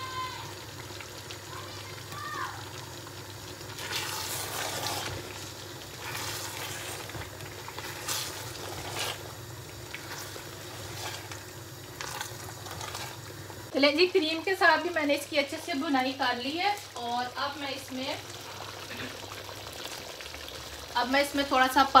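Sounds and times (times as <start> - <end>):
sizzling and spatula scraping: 3.6 - 13.5.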